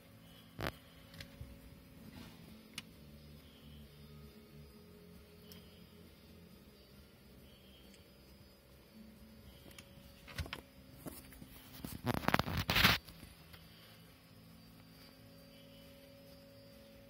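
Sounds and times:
faint steady hum: 0.0 - 17.0
camera rubbing and clicking: 11.0 - 13.2.

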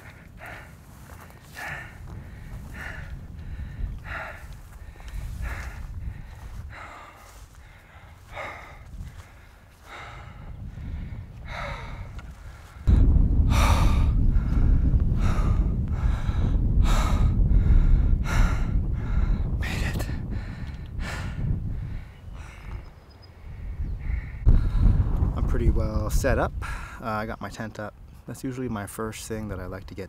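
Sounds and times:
person breathing hard: 0.0 - 25.1, 26.6 - 27.0
loud low rumble: 12.9 - 21.9, 24.0 - 26.8.

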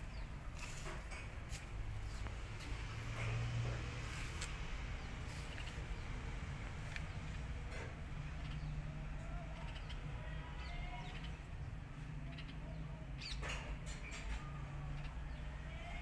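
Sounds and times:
birds chirping and cooing: 4.8 - 16.0.

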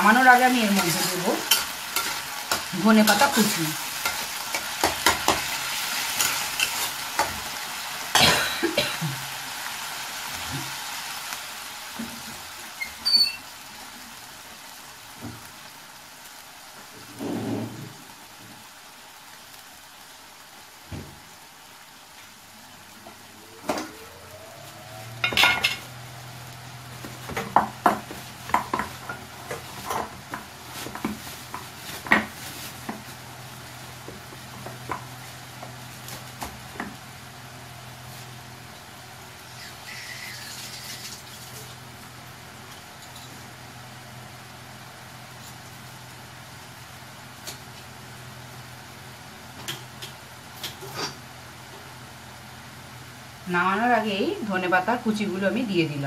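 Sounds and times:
light sizzle: 0.0 - 56.0
spatula knocking on pan: 4.8 - 5.5, 27.0 - 31.2.

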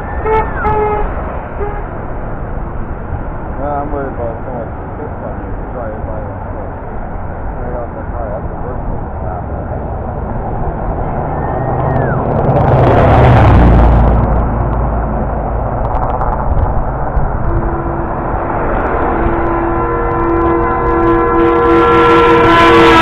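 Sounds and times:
heavy vehicle passing: 0.0 - 23.0
vehicle horn steady note: 0.2 - 2.0, 17.4 - 18.4, 19.1 - 23.0.

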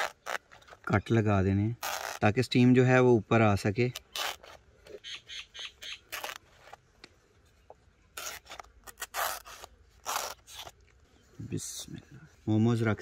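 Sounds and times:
knife slitting wet leaf: 6.1 - 6.4, 8.1 - 10.8.

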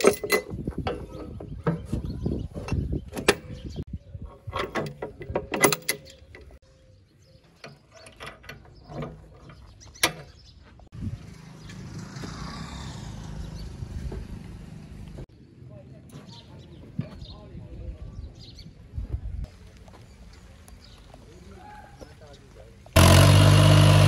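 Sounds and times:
metal latch clanking and rattling: 0.0 - 1.9, 2.6 - 3.7, 4.3 - 6.6, 7.6 - 10.4
steady outdoor noise: 0.0 - 24.0.

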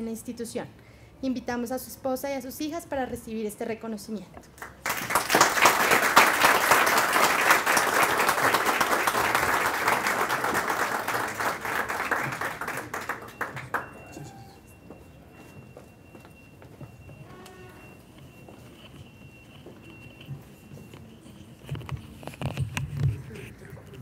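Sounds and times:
audience applause: 4.6 - 14.3.

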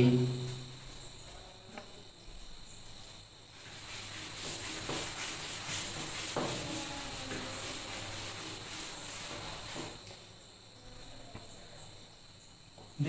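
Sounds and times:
duster rubbing on blackboard: 3.5 - 10.2.

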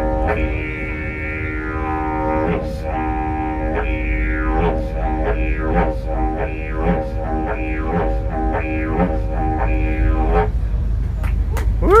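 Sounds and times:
didgeridoo drone: 0.0 - 12.0.

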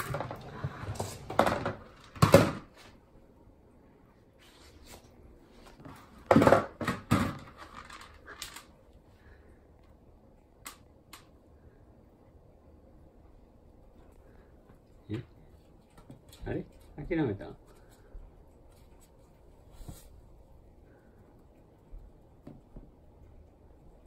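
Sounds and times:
hard plastic knocking and clattering: 0.0 - 2.7, 6.2 - 8.1.

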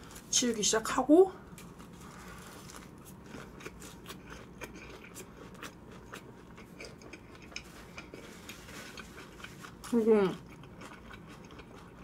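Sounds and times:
person chewing food: 1.6 - 12.0.

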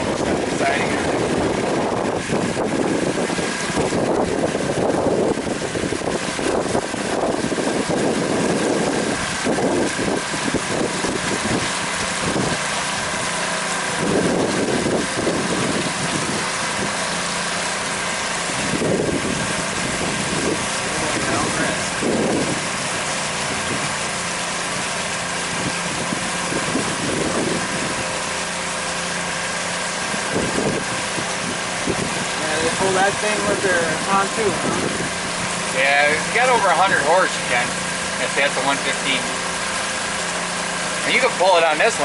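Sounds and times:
wind gusts on microphone: 0.0 - 17.0, 18.4 - 24.1, 25.4 - 28.2, 30.1 - 36.4
outboard motor running: 0.0 - 42.0.

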